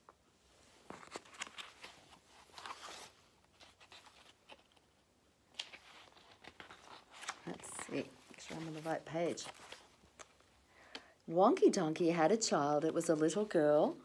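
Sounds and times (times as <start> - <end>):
book pages turning: 0.8 - 10.5.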